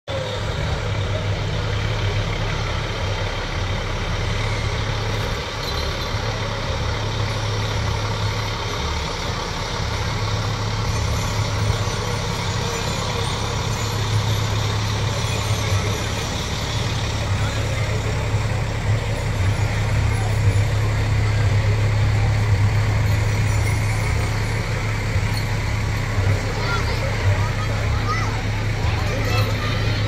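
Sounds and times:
fire truck diesel engine rumbling: 0.0 - 30.0.

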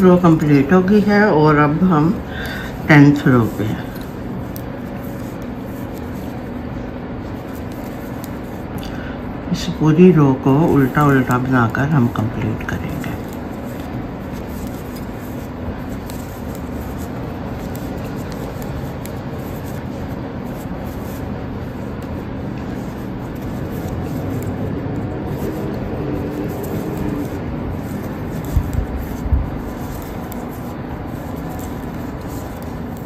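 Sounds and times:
low background rumble: 0.0 - 33.0.

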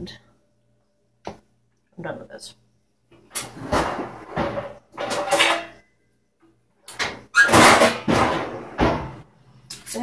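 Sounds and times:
metal pans clattering: 3.3 - 5.9, 6.9 - 9.2.

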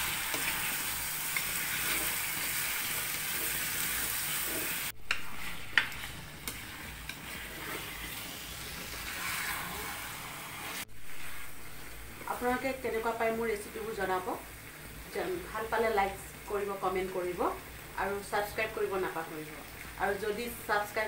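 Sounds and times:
chicken sizzling in hot oil: 0.0 - 21.0.

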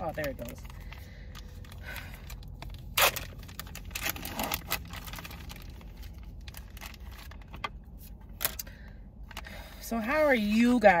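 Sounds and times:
plastic packaging crinkling and tearing: 0.0 - 8.7.

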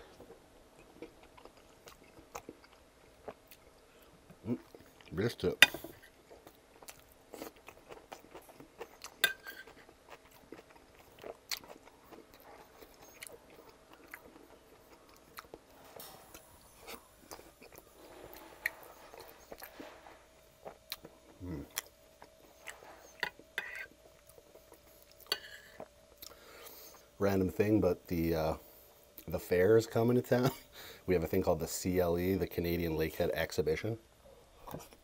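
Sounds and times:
close chewing mouth sounds: 0.1 - 5.2, 6.2 - 19.9
metal spoon scraping a plate: 23.0 - 23.9.

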